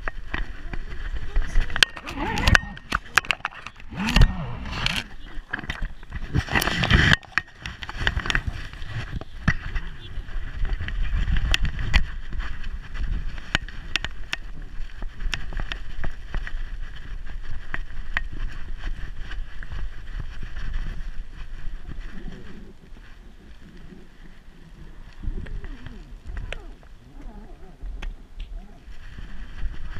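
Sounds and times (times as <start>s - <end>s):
camera handling rumble: 0.0s - 29.9s
sharp clicks and knocks: 1.6s - 9.8s.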